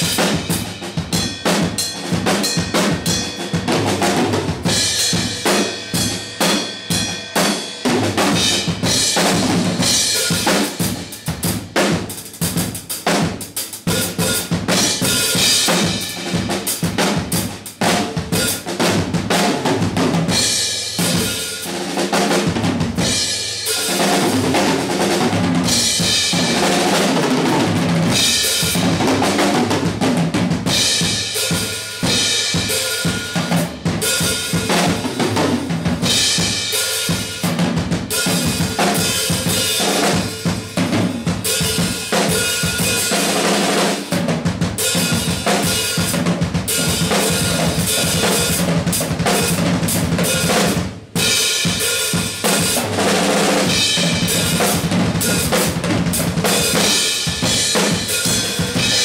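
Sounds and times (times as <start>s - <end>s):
drum kit solo: 0.0s - 59.0s.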